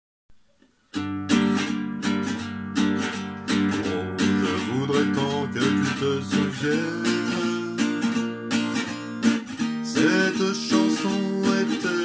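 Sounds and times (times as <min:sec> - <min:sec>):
acoustic guitar strumming: 0:00.9 - 0:12.0.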